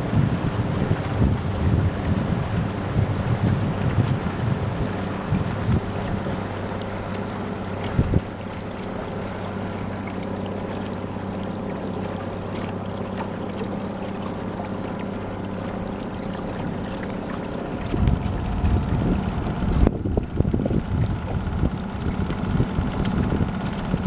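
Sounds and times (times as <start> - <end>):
wind buffeting microphone: 0.0 - 11.0, 16.3 - 24.0
boat motor running: 0.0 - 24.0.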